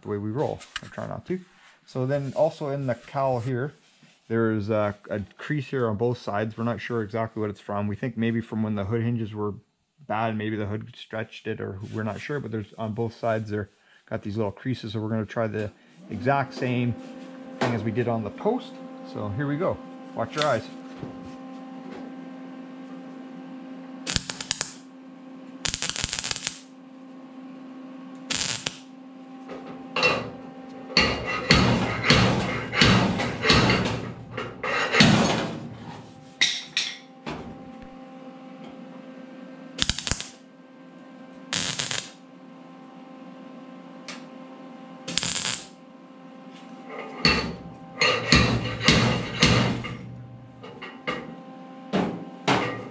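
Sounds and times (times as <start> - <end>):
steady hum: 0.0 - 52.9
welding bursts: 24.1 - 24.9, 25.6 - 26.7, 28.3 - 28.9, 31.0 - 35.4, 39.8 - 40.4, 41.5 - 42.2, 45.1 - 45.8.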